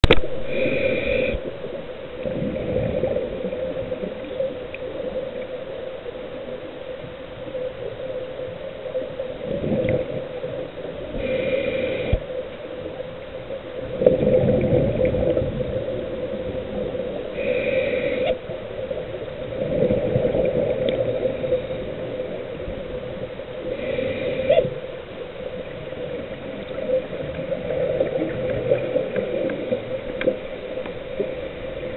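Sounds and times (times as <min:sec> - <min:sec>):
diver breathing through regulator: 0:00.4 - 0:01.5, 0:11.1 - 0:12.3, 0:17.3 - 0:18.4, 0:23.6 - 0:24.8.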